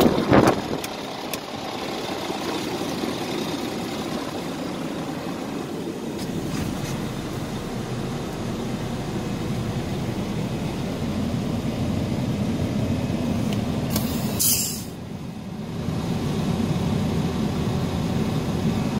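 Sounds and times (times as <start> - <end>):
diesel engine idling: 0.0 - 18.9
air brake hiss: 13.9 - 15.0.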